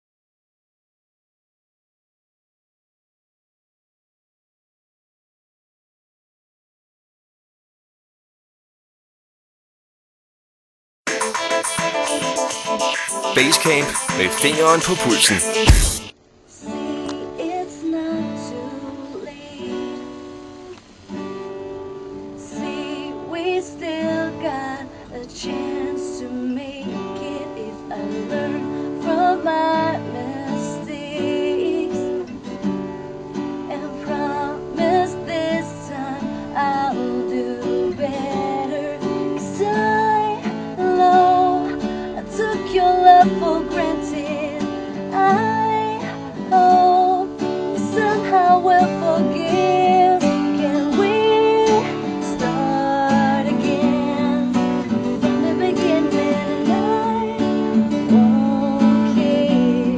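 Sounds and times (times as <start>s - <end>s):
acoustic guitar strummed and picked: 11.1s - 59.9s
woman singing: 16.6s - 20.3s, 22.4s - 32.3s, 33.6s - 59.9s.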